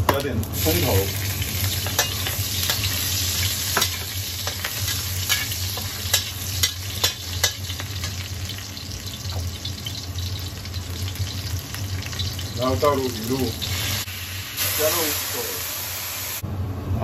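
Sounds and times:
meat sizzling in hot oil: 0.0s - 16.4s
steel ladle scraping a pan: 1.6s - 8.2s.

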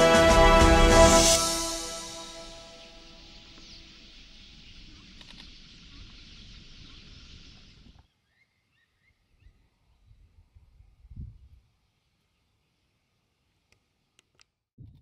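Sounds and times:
flock of birds chirping: 2.7s - 9.6s.

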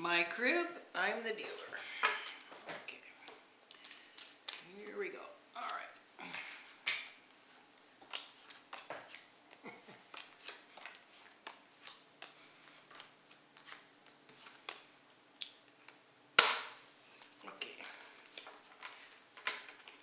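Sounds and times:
playing cards snapping on stone table: 16.4s - 16.8s.

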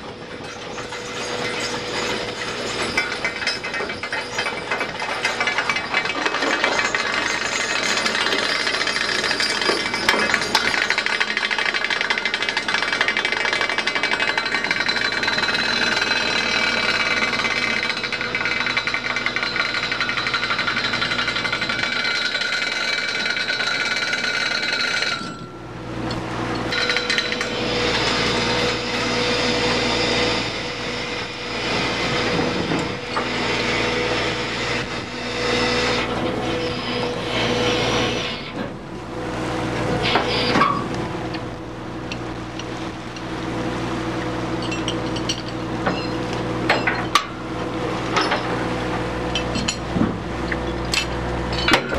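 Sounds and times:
steady mechanical whine: 0.0s - 51.9s
chains clattering over steel: 0.3s - 25.6s, 44.6s - 47.3s, 49.3s - 49.9s, 50.9s - 51.9s
boat engine humming: 25.2s - 51.8s.

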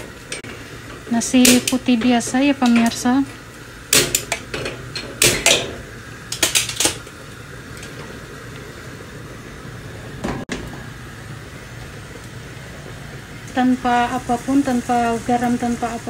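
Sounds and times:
steady low hum: 0.0s - 16.0s
cooking pot knocking and clattering: 3.9s - 5.8s.

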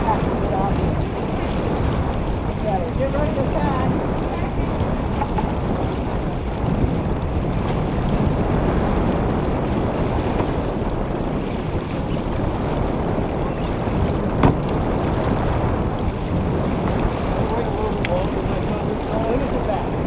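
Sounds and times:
water rushing along hull: 0.0s - 20.0s
wind buffeting microphone: 0.0s - 20.0s
sharp knock: 14.4s - 14.7s.

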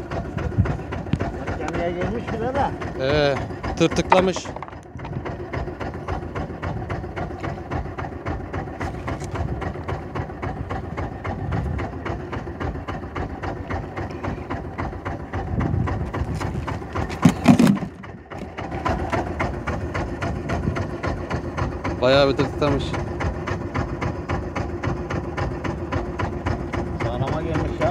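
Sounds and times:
boat engine idling: 0.0s - 27.9s
loud clatter and thump: 4.0s - 5.2s, 16.4s - 18.1s.

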